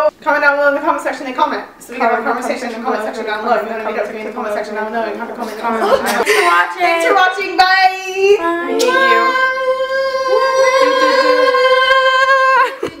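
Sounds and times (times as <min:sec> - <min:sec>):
girls singing: 0:08.2 - 0:13.0.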